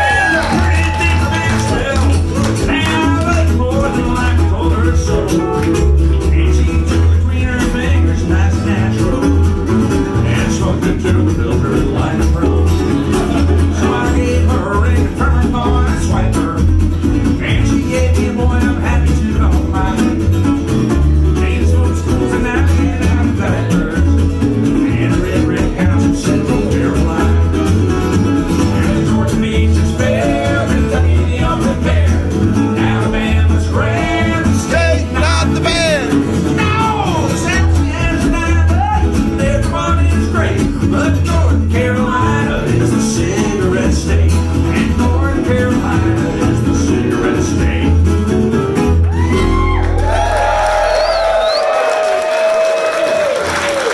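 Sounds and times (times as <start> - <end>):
strummed acoustic guitar: 0.0 - 49.4
plucked upright bass: 0.0 - 50.6
bluegrass band playing: 0.0 - 51.6
resonator guitar: 0.5 - 49.4.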